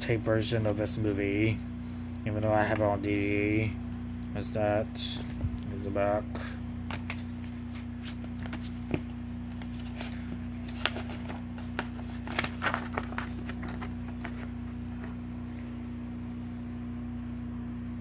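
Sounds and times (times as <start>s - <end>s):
steady low hum: 0.0s - 18.0s
glossy paper crinkling: 6.6s - 15.2s.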